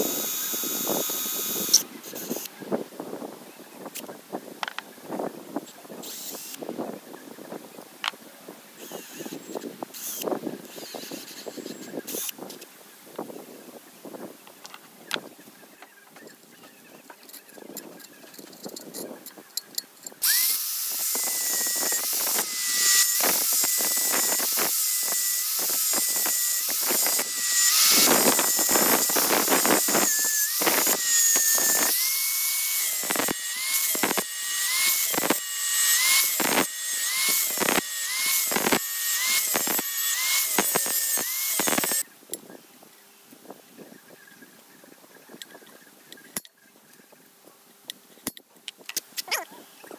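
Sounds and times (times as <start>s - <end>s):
angle grinder cutting steel: 0.0s - 2.5s, 20.2s - 42.0s.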